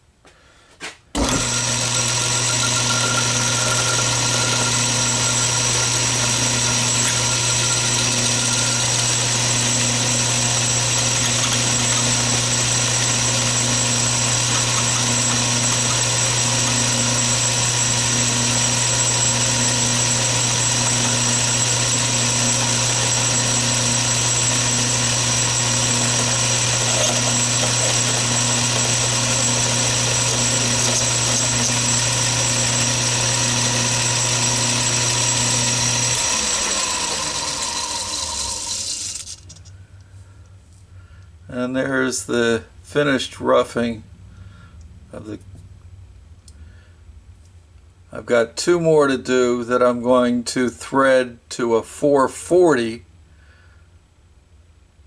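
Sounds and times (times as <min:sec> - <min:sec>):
lathe motor running: 0:01.2 - 0:39.6.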